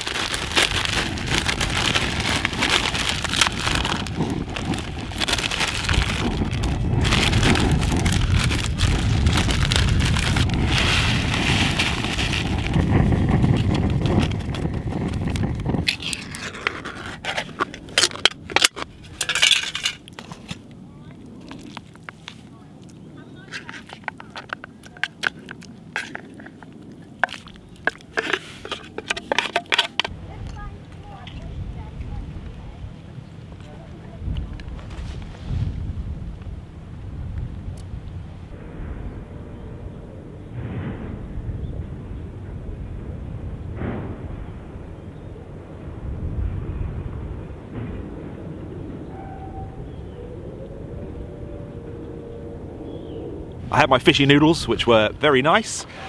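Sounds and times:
plastic packet crinkling: 0.0s - 20.6s, 23.5s - 30.1s
wind rumble on microphone: 0.0s - 56.0s.

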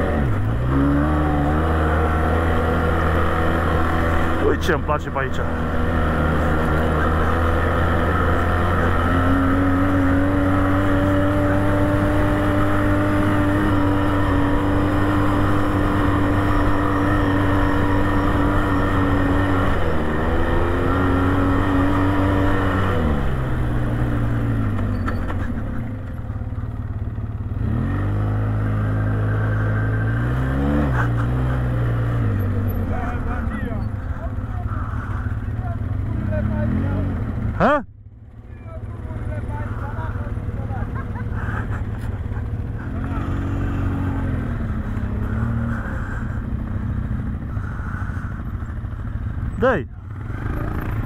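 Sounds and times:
atv engine revving: 0.0s - 51.0s.

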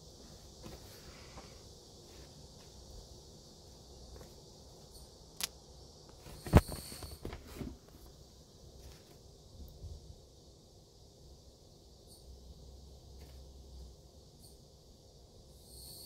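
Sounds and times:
soft taps and rustles on tissue: 0.2s - 2.9s, 4.0s - 4.9s, 8.8s - 9.2s.

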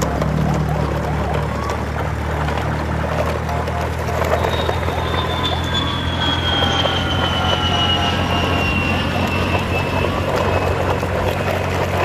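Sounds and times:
heavy vehicle engine droning: 0.0s - 12.0s
high whine falling in pitch: 3.3s - 11.5s.

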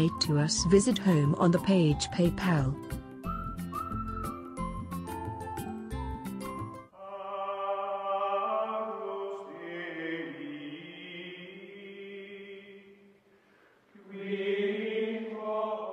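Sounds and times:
chanted singing: 7.0s - 12.9s, 14.0s - 15.9s.

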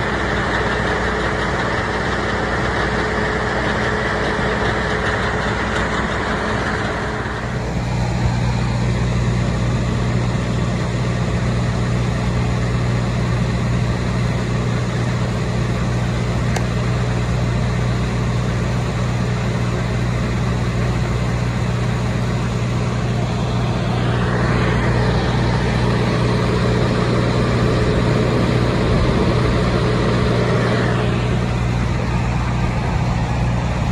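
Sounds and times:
conveyor belt moving: 0.0s - 33.9s
low engine drone: 0.0s - 33.9s
loud rushing noise: 22.6s - 33.9s.

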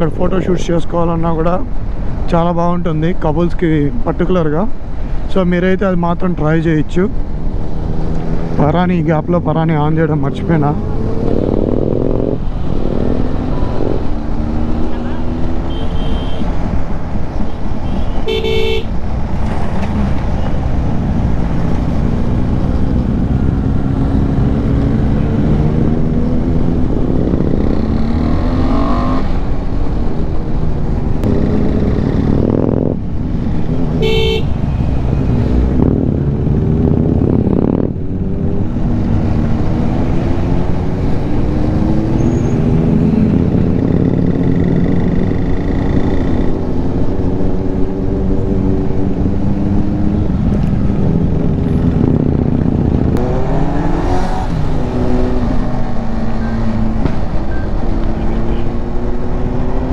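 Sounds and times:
motorcycle engine accelerating: 10.3s - 15.7s, 21.3s - 29.4s, 31.2s - 34.1s, 35.2s - 59.9s
vehicle horn beeping: 15.7s - 16.5s, 17.8s - 18.9s, 34.0s - 34.8s.

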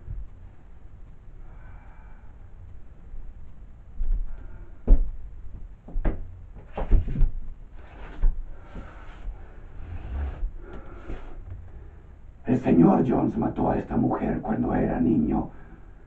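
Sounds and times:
wooden knocks and bumps: 5.8s - 7.4s.

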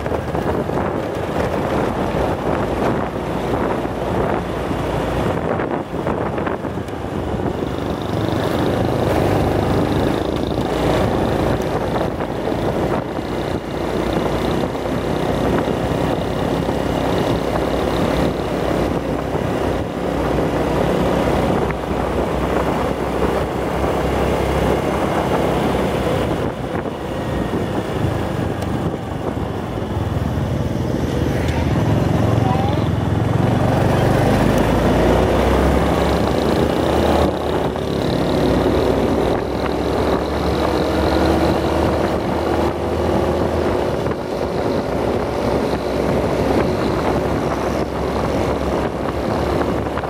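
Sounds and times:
rush of air and road noise: 0.0s - 50.0s
scooter engine running: 0.0s - 50.0s.

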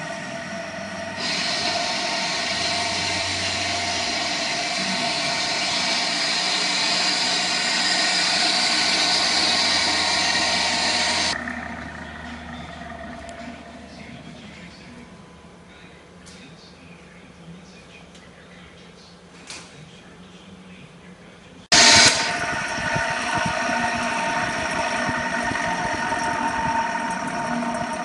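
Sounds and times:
loud even hiss: 0.0s - 11.4s, 21.7s - 27.6s
mixer motor humming: 0.0s - 15.0s, 21.7s - 28.0s.

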